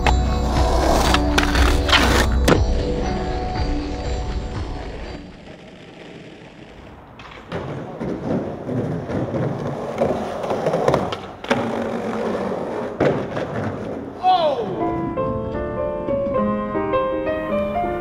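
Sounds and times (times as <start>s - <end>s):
background music: 0.0s - 5.8s, 14.2s - 18.0s
skateboard wheels rolling on pavement: 0.0s - 18.0s
skateboard clacks: 5.3s - 14.2s.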